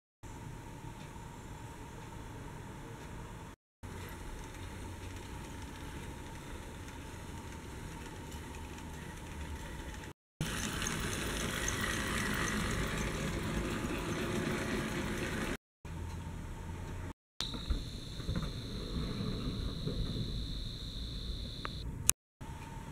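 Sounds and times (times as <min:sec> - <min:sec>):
wheels rattling on rail: 0:03.9 - 0:15.6, 0:17.5 - 0:20.8.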